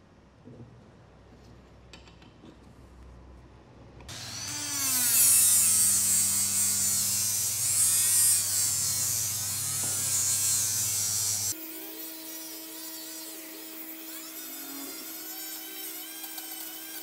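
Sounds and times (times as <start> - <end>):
rotary tool grinding metal: 4.1 - 17.0
rotary tool motor whine: 4.1 - 17.0.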